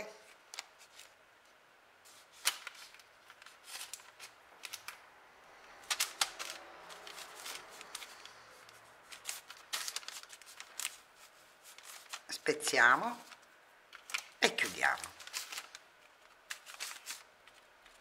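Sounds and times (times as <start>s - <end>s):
baking parchment rustling: 0.0s - 18.0s.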